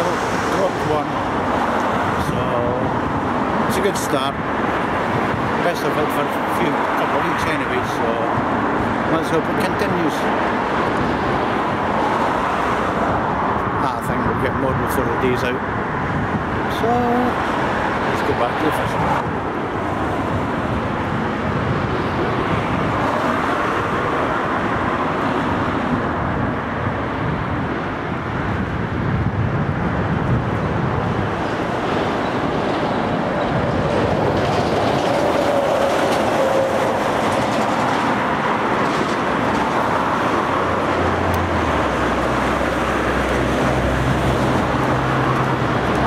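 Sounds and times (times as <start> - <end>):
cars passing on road: 0.0 - 46.0.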